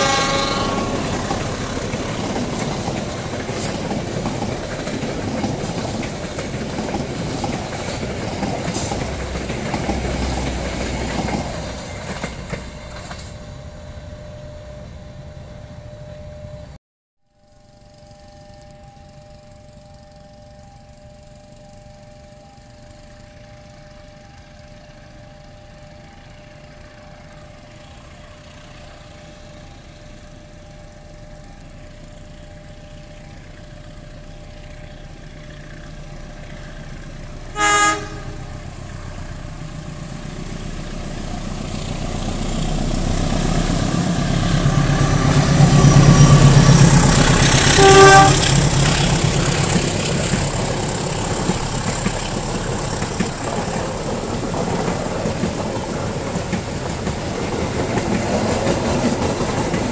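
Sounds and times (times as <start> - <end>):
train horn toots: 0.0 - 1.6, 37.5 - 38.8, 44.5 - 49.6
train coaches rumbling on rails: 0.0 - 15.8, 19.0 - 59.9
diesel locomotive passing: 0.0 - 16.8, 17.4 - 59.9.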